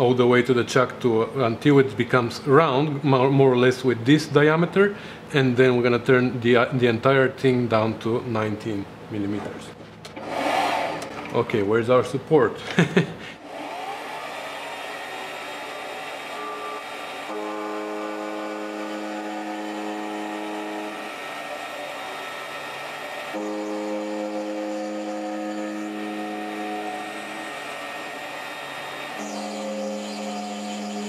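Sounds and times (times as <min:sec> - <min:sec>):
lathe motor humming: 0:10.1 - 0:11.4, 0:13.4 - 0:31.0
lathe cutting metal: 0:10.2 - 0:11.3, 0:13.4 - 0:31.0.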